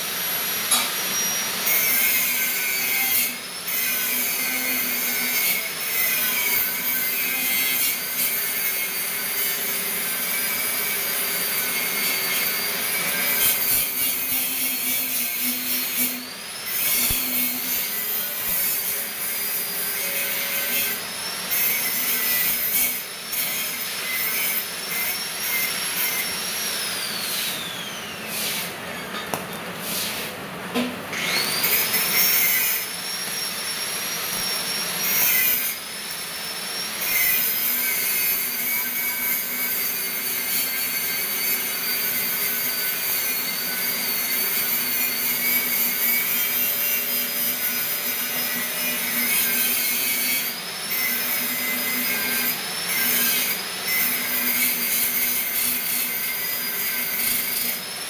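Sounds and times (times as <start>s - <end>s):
welding arc crackling: 0.0s - 27.6s, 31.4s - 50.5s.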